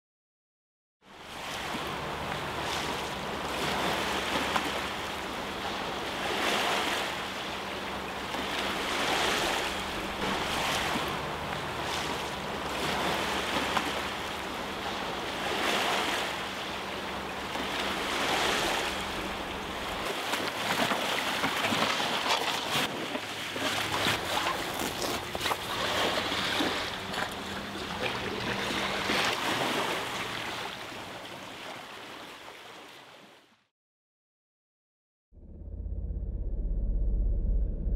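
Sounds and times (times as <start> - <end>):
surf washing ashore: 1.1 - 33.4
low steady hum: 35.4 - 37.9.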